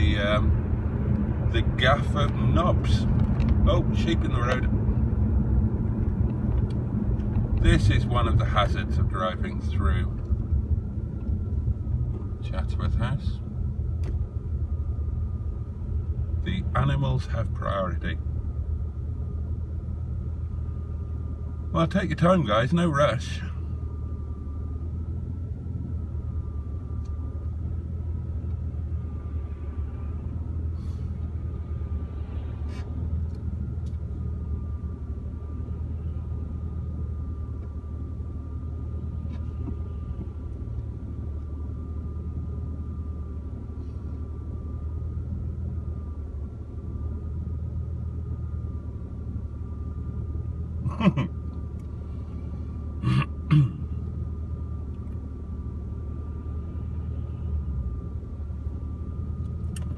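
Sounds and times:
car engine idling: 0:00.0 - 0:59.9
faint high whine: 0:20.2 - 0:59.9.

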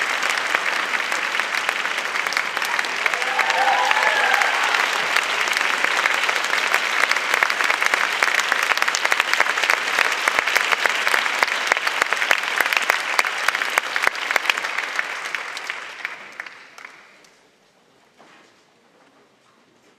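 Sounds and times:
audience applauding: 0:00.0 - 0:17.3.

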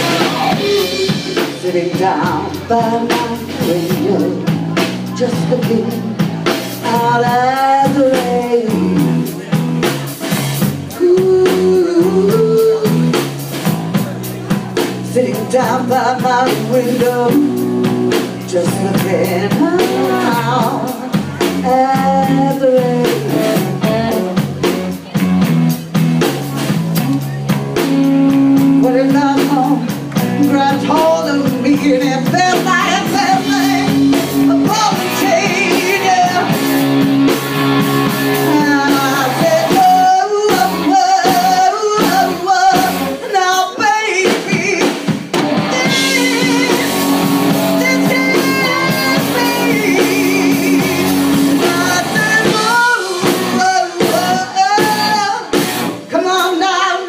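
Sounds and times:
woman singing: 0:00.0 - 0:09.6, 0:10.6 - 0:13.6, 0:15.0 - 0:24.9, 0:27.8 - 0:37.4, 0:38.0 - 0:57.0
drum kit: 0:00.0 - 0:57.0
electric guitars: 0:00.0 - 0:57.0.

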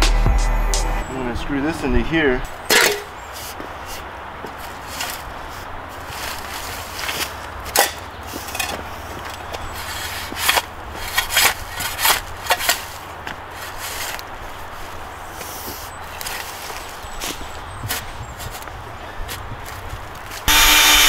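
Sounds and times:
shovel scraping into dirt: 0:02.7 - 0:14.2.

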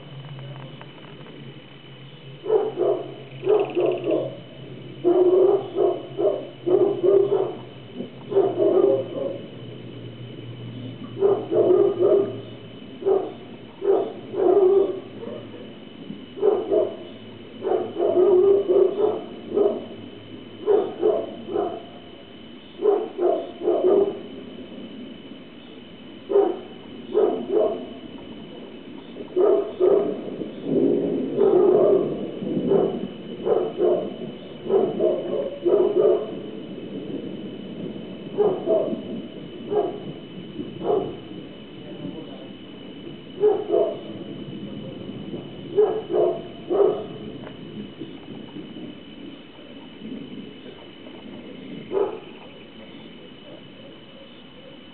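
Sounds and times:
dog barking: 0:02.4 - 0:04.4, 0:05.0 - 0:07.7, 0:08.3 - 0:09.5, 0:11.2 - 0:15.8, 0:16.4 - 0:20.0, 0:20.6 - 0:22.0, 0:22.8 - 0:24.3, 0:26.3 - 0:28.0, 0:29.3 - 0:30.2, 0:31.3 - 0:36.5, 0:38.3 - 0:39.1, 0:39.7 - 0:40.1, 0:40.8 - 0:41.3, 0:43.3 - 0:44.2, 0:45.7 - 0:47.3, 0:51.9 - 0:52.3, 0:53.4 - 0:54.9.

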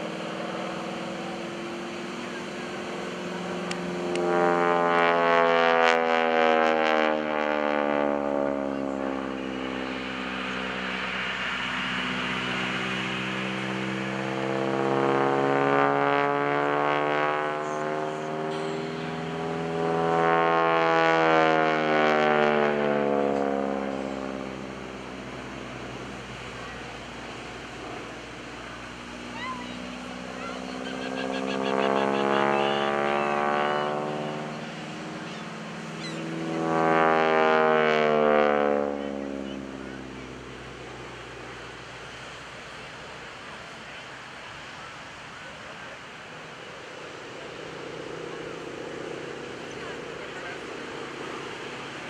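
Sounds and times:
propeller aircraft engine drone: 0:00.0 - 0:52.0.

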